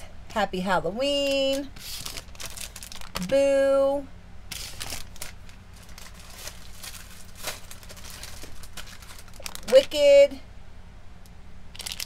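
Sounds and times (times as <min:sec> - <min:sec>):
faint steady hum: 0:00.0 - 0:12.0
crinkly packaging rustles: 0:01.2 - 0:03.3, 0:04.5 - 0:10.1, 0:11.7 - 0:12.0.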